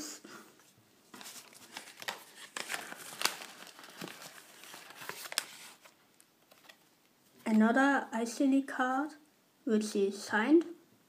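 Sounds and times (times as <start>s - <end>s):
paper rustling and crinkling: 1.0s - 7.6s.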